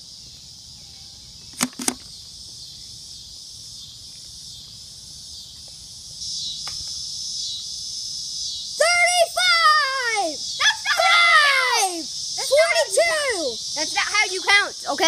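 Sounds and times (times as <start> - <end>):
insect chorus: 0.0 - 15.0
sharp clicks: 1.5 - 2.1.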